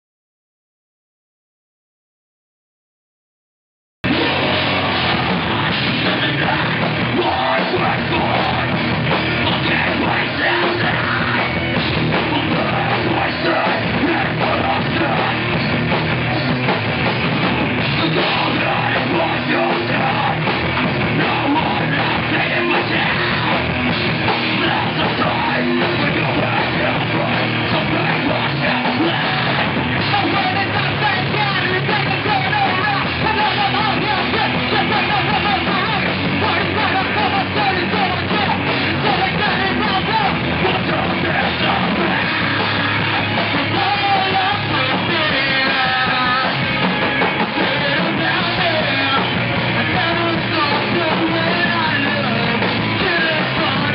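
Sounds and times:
person singing and yelling: 4.0s - 16.6s, 17.8s - 53.9s
heavy rock band playing: 4.0s - 53.9s.

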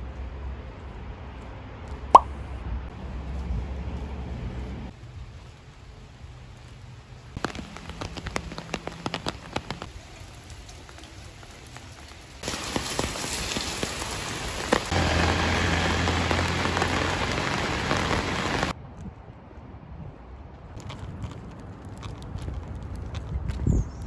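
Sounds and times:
heavy rain on pavement: 3.0s - 18.8s.

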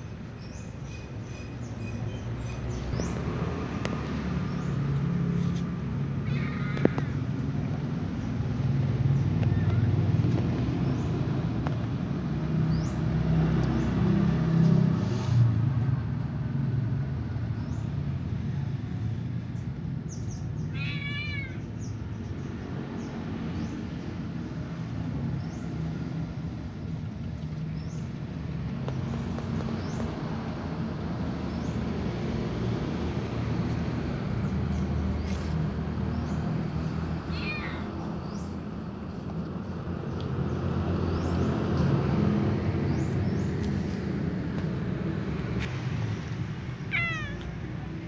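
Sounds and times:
cat meowing: 6.2s - 7.2s, 20.7s - 21.7s, 37.3s - 37.9s, 46.8s - 47.6s.

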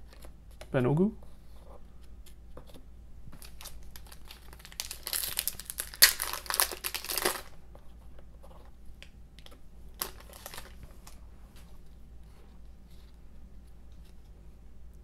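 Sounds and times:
cards rustling: 2.6s - 7.5s, 9.4s - 11.2s
foil wrapper crinkling and tearing: 3.4s - 7.5s, 10.0s - 11.2s.

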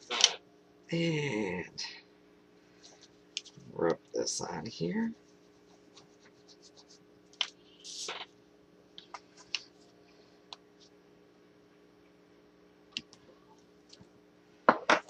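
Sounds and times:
faint steady hum: 0.0s - 15.0s
paper rustle: 7.4s - 8.3s.

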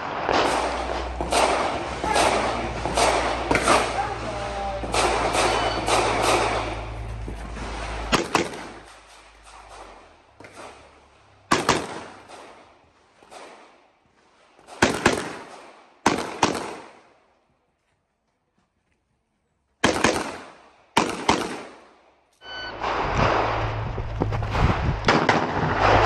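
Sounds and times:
pistol shots: 0.0s - 4.0s, 4.8s - 7.0s, 8.1s - 8.9s, 11.5s - 12.6s, 14.6s - 17.0s, 19.8s - 21.9s
loud crackling with sharp cracks: 0.0s - 17.1s, 22.7s - 26.0s.

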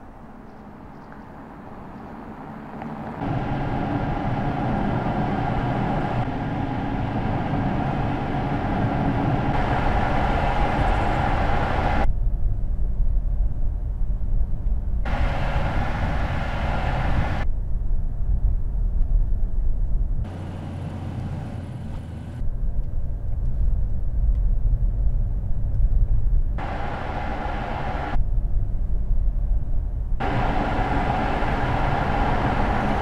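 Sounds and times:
car tyre and drive noise: 0.0s - 12.1s, 14.5s - 17.5s, 18.9s - 28.2s, 30.2s - 33.0s.

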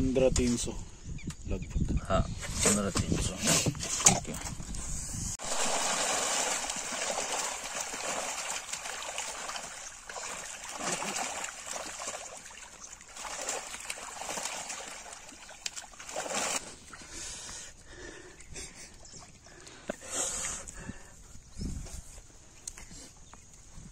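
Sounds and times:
muddy water splashing: 5.4s - 21.1s.

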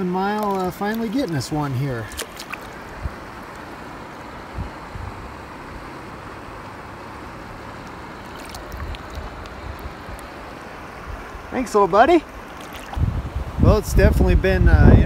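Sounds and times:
river water rushing over riffle: 0.0s - 13.7s
fish splashing in water: 0.2s - 4.6s, 5.4s - 11.5s, 12.2s - 13.5s.

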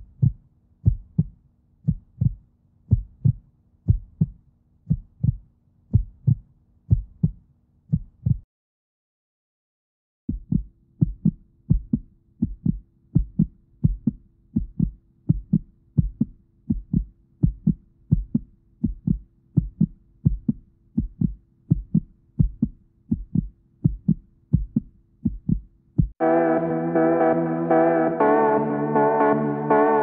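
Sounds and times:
heartbeat thumps: 0.0s - 8.5s, 10.3s - 26.2s
faint low drone: 26.2s - 30.0s.

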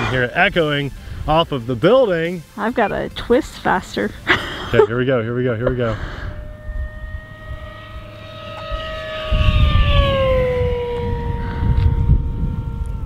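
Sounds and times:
low rumble: 2.6s - 13.0s
electric plane motor whining: 4.3s - 13.0s.

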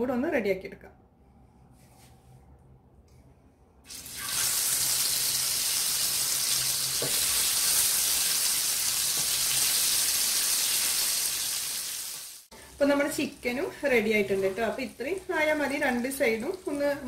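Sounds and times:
chicken sizzling in hot oil: 3.9s - 17.0s.

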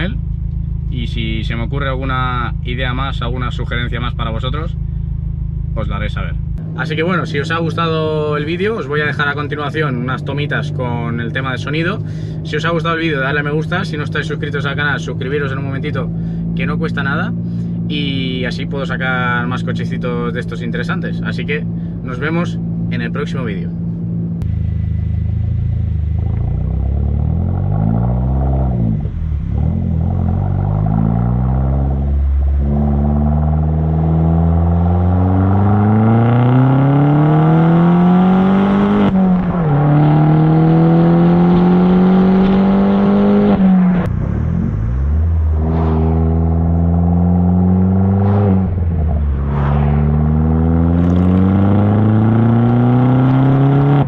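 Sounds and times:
car engine revving through gears: 25.1s - 54.0s.

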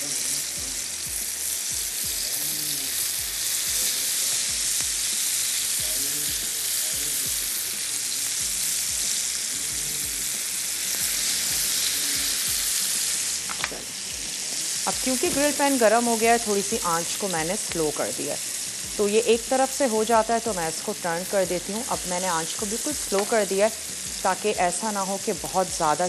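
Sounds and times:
chicken sizzling in grill pan: 0.0s - 26.0s.

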